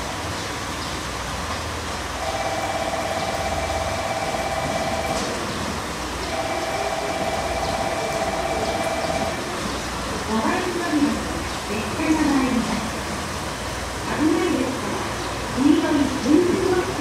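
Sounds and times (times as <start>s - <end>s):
railcar rumbling slowly: 0.0s - 17.0s
steady high tone: 2.2s - 5.3s, 6.3s - 9.5s.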